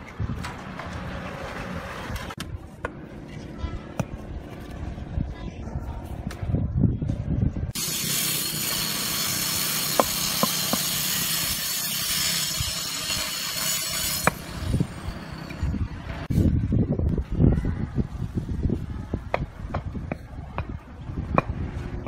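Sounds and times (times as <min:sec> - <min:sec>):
steady rushing hiss: 0:07.8 - 0:14.8.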